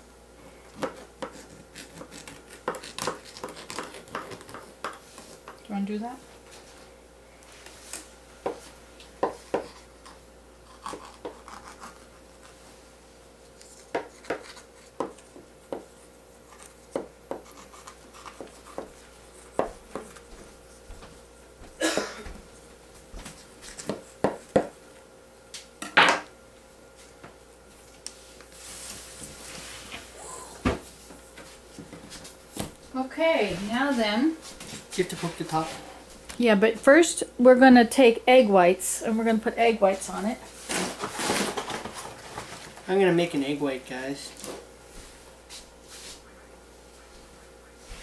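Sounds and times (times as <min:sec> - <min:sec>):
knife clicking and scraping crust: 0:00.8 - 0:05.3, 0:09.6 - 0:12.6, 0:13.5 - 0:15.4, 0:16.4 - 0:20.2.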